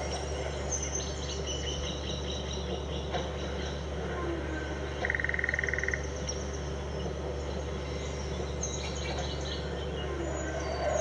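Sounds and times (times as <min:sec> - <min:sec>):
steady low electronic hum: 0:00.0 - 0:11.0.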